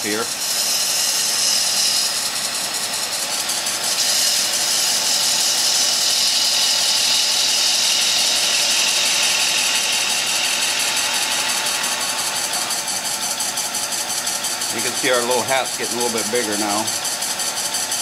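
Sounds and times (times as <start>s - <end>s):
gouge cutting wood on a lathe: 0.0s - 18.0s.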